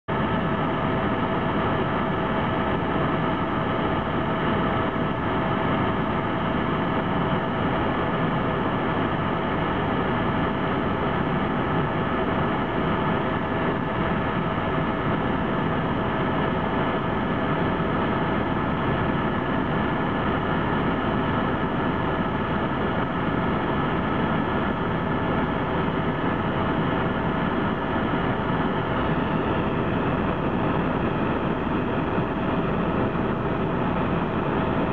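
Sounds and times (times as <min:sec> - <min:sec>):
helicopter cabin drone: 0:00.1 - 0:34.9.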